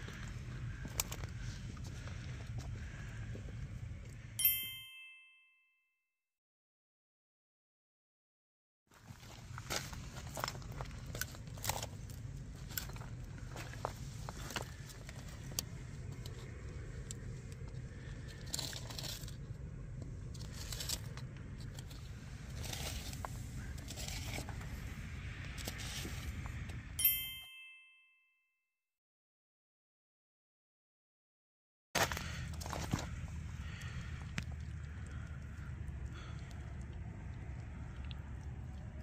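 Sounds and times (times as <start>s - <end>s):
low steady rumble: 0.0s - 4.7s, 9.0s - 27.0s, 32.1s - 39.0s
short ringing chime: 4.4s - 5.8s, 27.0s - 28.4s.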